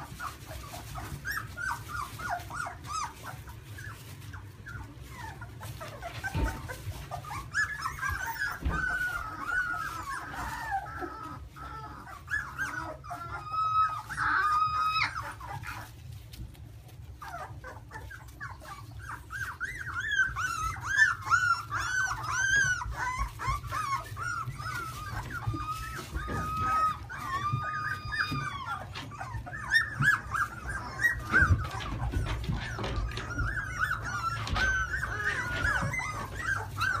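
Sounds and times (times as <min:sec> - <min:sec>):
puppies squeaking and whining: 0:00.0 - 0:37.0.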